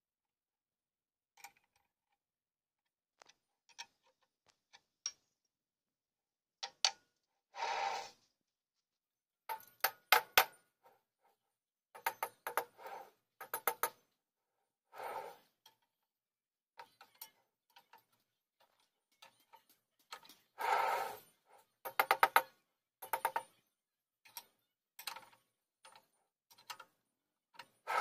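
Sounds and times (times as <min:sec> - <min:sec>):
short scrape: 0:07.6 - 0:08.3, 0:15.0 - 0:15.4
clicks and taps on wood: 0:21.9 - 0:23.5.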